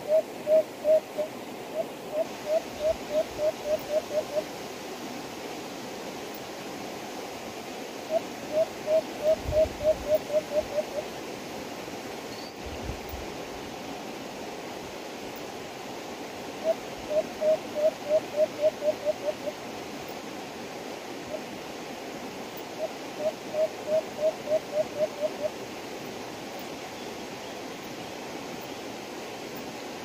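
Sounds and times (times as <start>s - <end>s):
dove hooting: 0.0s - 4.5s, 8.1s - 11.1s, 16.6s - 19.6s, 22.8s - 25.5s
steady hiss: 0.0s - 30.0s.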